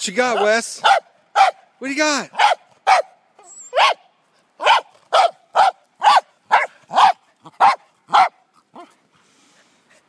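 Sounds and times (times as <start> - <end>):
dog barking: 0.3 - 1.6, 2.3 - 8.9.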